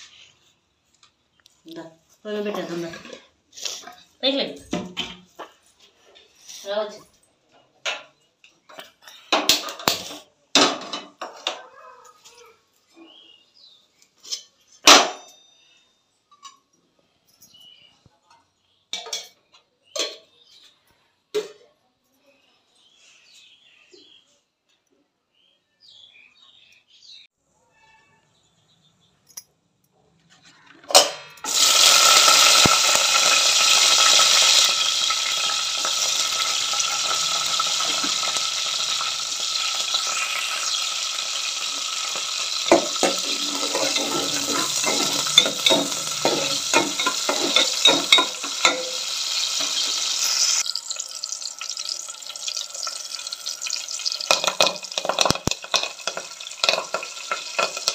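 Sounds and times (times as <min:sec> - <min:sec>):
chillies sizzling in hot oil: 0:30.9 - 0:57.9
oil crackling and popping: 0:30.9 - 0:57.9.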